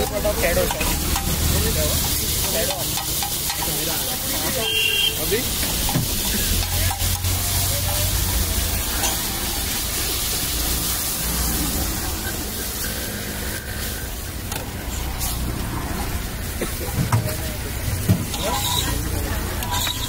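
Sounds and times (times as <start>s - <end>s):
bread sizzling on griddle: 0.0s - 20.0s
street traffic rumble: 0.0s - 20.0s
background voices: 5.4s - 20.0s
metal spatula clicking on griddle: 6.5s - 8.3s.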